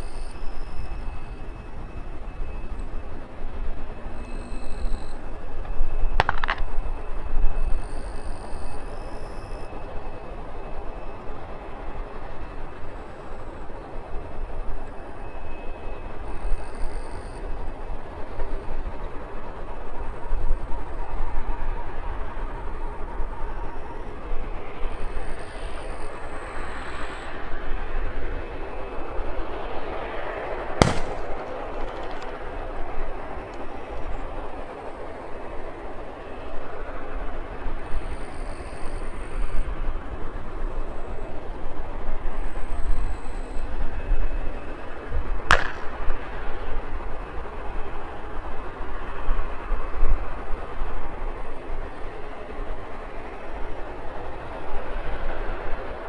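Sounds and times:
faint high whine: 0.0 - 56.0
sharp click: 6.2 - 6.7
airliner rumbling: 17.4 - 56.0.

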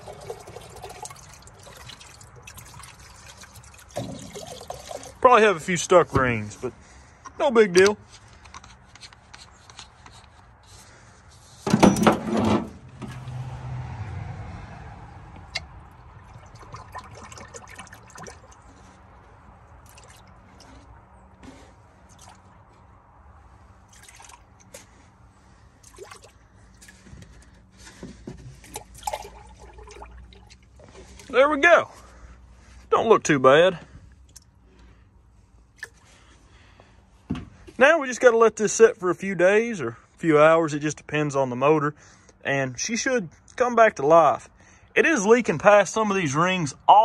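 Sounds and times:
fluid trickling and splashing: 0.0 - 5.4, 12.9 - 13.5, 15.4 - 22.8, 23.4 - 32.8, 35.7 - 36.3.

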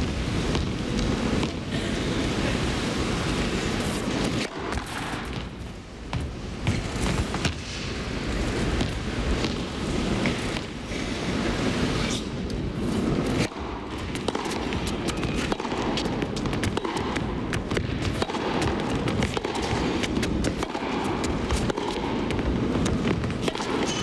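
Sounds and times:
crowd and hall rumble: 0.0 - 24.0
tennis ball strikes: 4.3 - 5.6, 13.3 - 24.0.

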